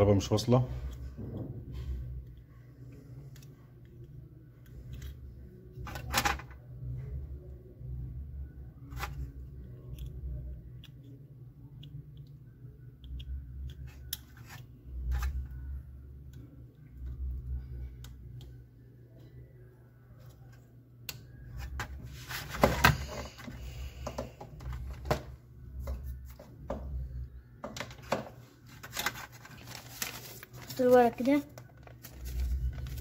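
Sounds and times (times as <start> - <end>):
circuit board and wiring handling: 27.6 - 33.0.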